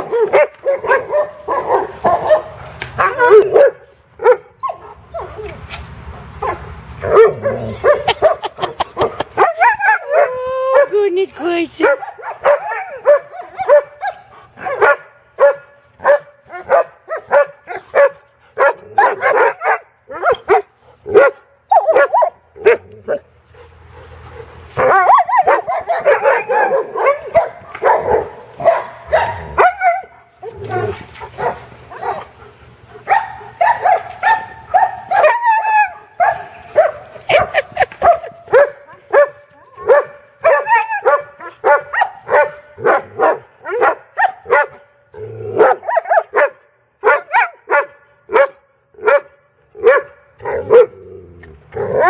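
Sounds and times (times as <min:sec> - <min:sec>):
dogs yelping and whining: 0:00.0 - 0:05.7, 0:06.4 - 0:10.9, 0:12.0 - 0:14.9, 0:18.8 - 0:23.2, 0:24.8 - 0:32.4, 0:33.1 - 0:42.4
dogs barking excitedly: 0:00.0 - 0:51.1.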